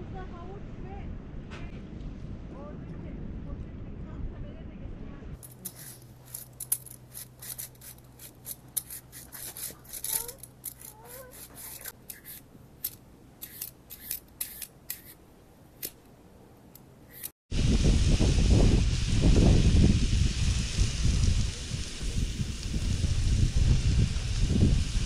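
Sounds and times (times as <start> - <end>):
vegetable peeler scraping: 5.4 - 15.2, 17.0 - 17.4.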